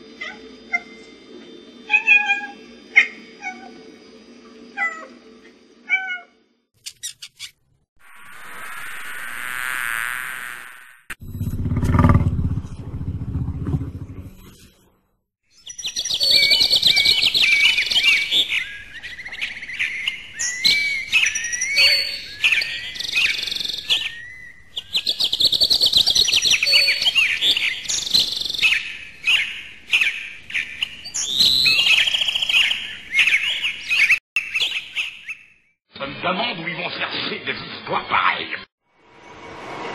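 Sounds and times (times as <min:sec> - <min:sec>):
loud low rumbling: 0:11.2 - 0:14.6
small birds chirping: 0:15.5 - 0:35.6.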